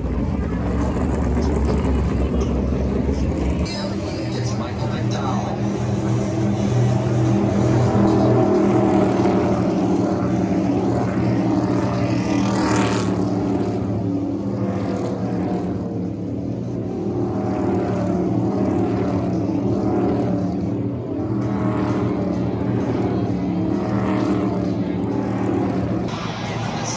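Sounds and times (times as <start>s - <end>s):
race car engines driving by: 0.0s - 26.9s.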